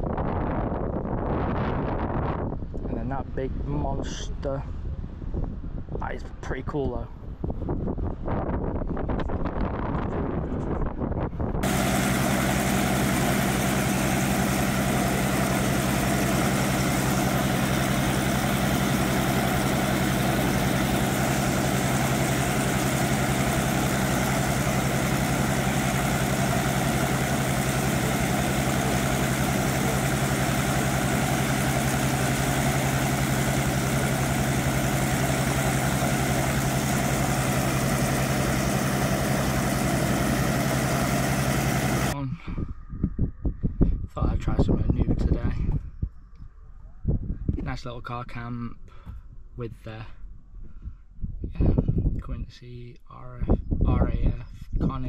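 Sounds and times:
engine droning: 11.6s - 42.2s
low hums: 11.6s - 43.8s.

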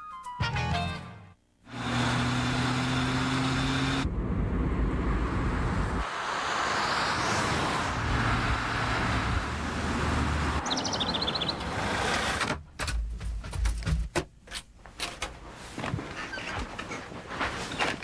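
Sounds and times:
engine hum: 1.7s - 12.7s
broad rushing noise: 4.0s - 10.7s.

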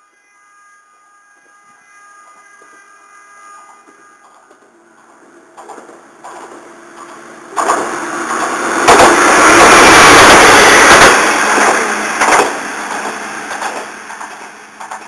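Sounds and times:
diesel train passing: 0.0s - 15.0s
sharp clack of wheels: 3.7s - 15.0s.

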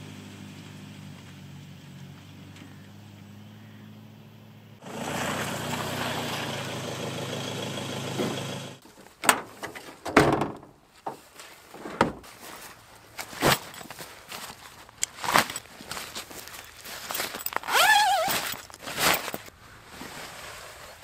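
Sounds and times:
truck engine running: 0.0s - 8.8s
thuds and scuffs on grass: 8.2s - 21.0s.

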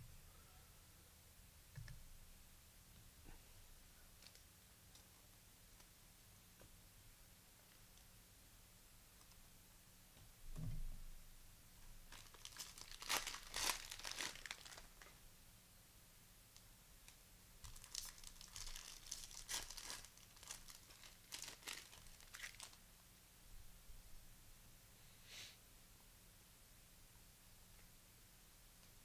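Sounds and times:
cellophane wrapper crinkling and tearing: 12.1s - 15.2s, 17.6s - 22.8s.

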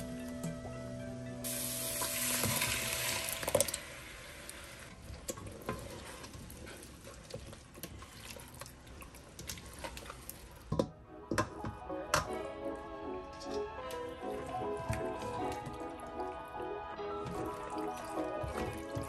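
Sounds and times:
pasta water hissing in sink: 1.4s - 10.7s, 17.1s - 19.0s
spoon stirring sauce in pot: 5.1s - 12.8s, 13.5s - 16.4s, 17.2s - 19.0s.

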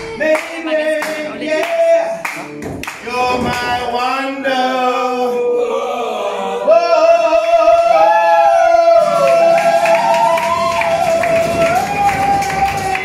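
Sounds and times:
man singing long notes: 0.0s - 10.2s.

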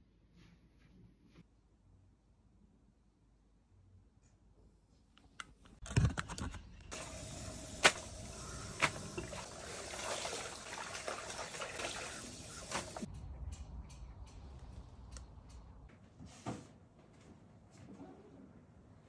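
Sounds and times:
water splashes: 6.9s - 13.1s.

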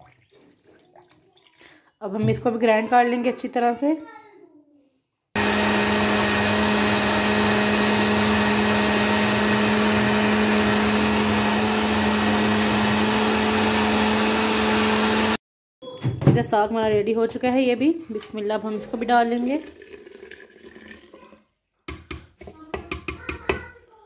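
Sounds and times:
blender motor running: 5.4s - 15.4s.

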